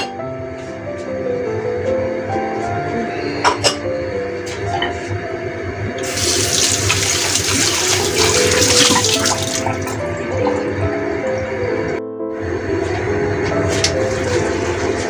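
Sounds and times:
background music: 0.0 - 15.0
tap water rushing: 5.9 - 12.0, 12.8 - 15.0.

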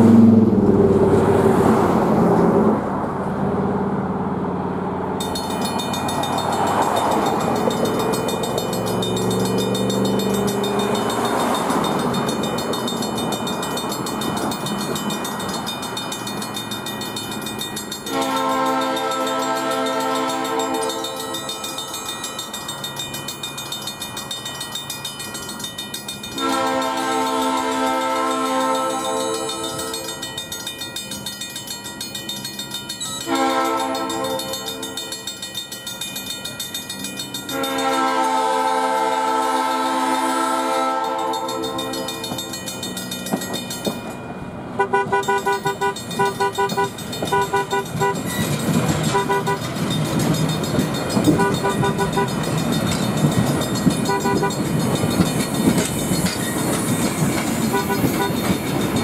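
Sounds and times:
train rumbling: 0.0 - 59.0
crossing bell ringing: 5.0 - 59.0
train horn blasts: 18.0 - 21.8, 26.4 - 30.2, 33.2 - 35.2, 37.5 - 42.2, 44.8 - 48.3, 49.0 - 49.7, 51.3 - 52.4, 54.0 - 54.6, 57.7 - 58.5.

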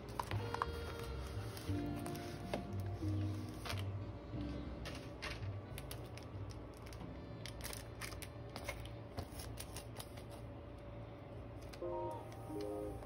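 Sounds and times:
plastic film and packaging crinkling: 0.0 - 4.0, 4.8 - 10.4
soft background music: 0.0 - 8.8, 11.6 - 13.0.

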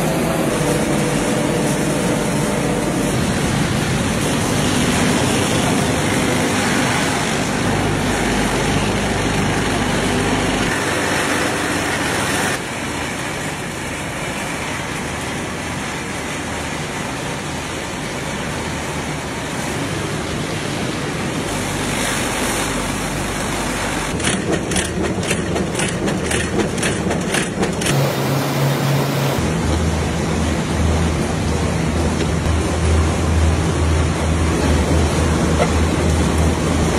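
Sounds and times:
factory machinery din: 0.0 - 17.7, 20.0 - 36.9
rapid rattling clicks: 24.2 - 28.0.

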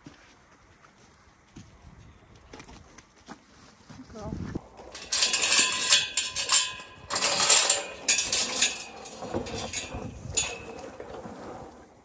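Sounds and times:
hanging chain rattling: 4.8 - 11.3
metal gate clattering: 4.8 - 11.3.

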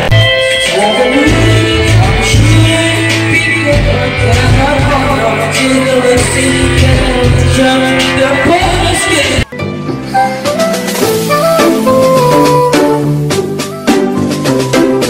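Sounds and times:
pop song with guitar and vocals: 0.0 - 9.5
different tune: 0.0 - 15.0.

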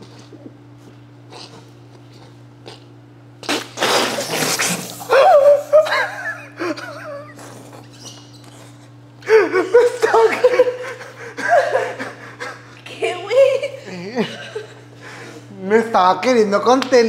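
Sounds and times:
person spluttering water: 3.4 - 5.7
person laughing: 5.1 - 7.7, 9.2 - 15.0.

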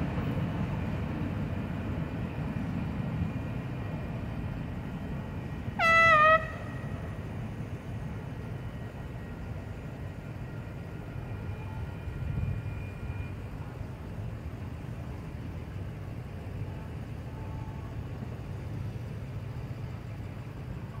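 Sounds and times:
road traffic rumble: 0.0 - 21.0
faint high steady tones: 6.6 - 21.0.

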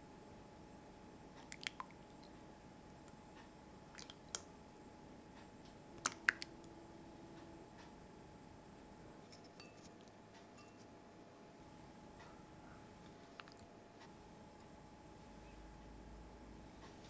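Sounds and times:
soup dripping into bowl: 1.4 - 2.4, 3.9 - 4.5, 6.0 - 6.6.

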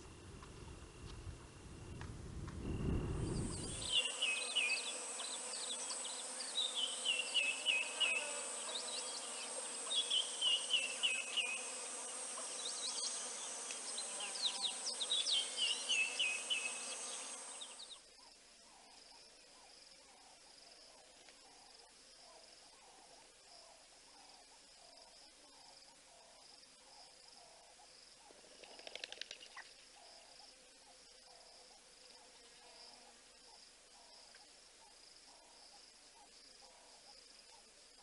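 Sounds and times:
low rumble: 0.0 - 3.7
high-pitched insect drone: 2.6 - 18.0.

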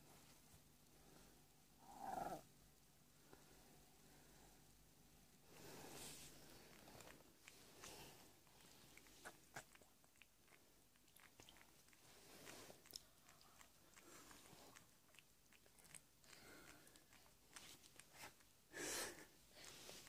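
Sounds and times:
cat licking wet mouth sounds: 6.2 - 20.0.

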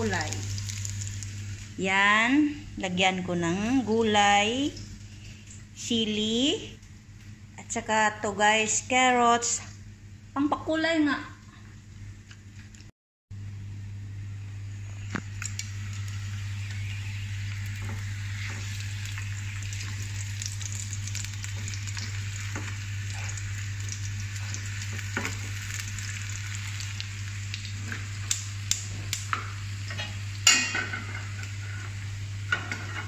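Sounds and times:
meat sizzling in a pan: 0.0 - 1.8, 15.2 - 33.0
low hum: 0.0 - 12.3, 13.3 - 33.0.

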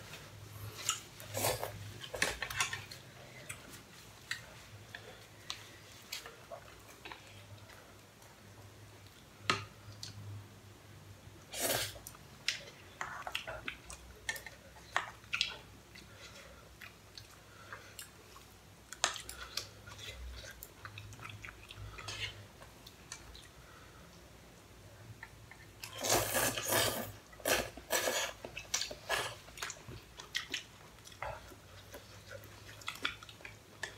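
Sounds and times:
chewing: 12.4 - 23.5, 25.2 - 33.9.

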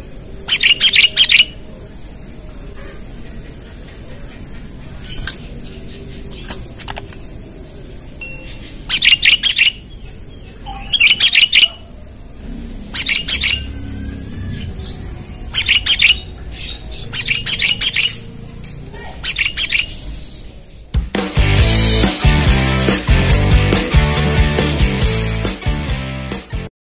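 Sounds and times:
bulbul chirping: 0.0 - 2.3, 8.0 - 20.9.

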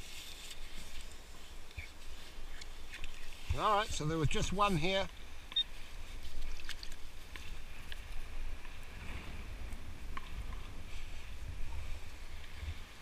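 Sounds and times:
wind rumble on microphone: 5.9 - 13.0.

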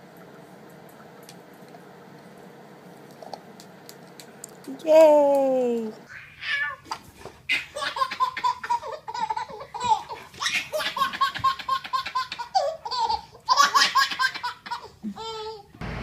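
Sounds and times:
baby laughing: 7.5 - 15.7.

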